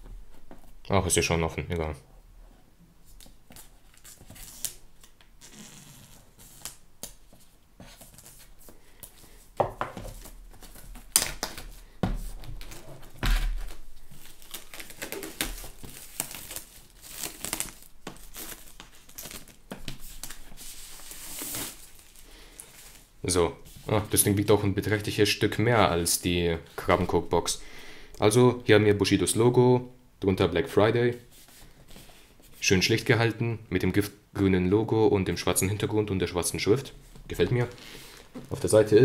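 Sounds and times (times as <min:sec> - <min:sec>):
plastic film crinkling: 0:10.1 - 0:23.1
sharp plastic rips: 0:12.6 - 0:19.6.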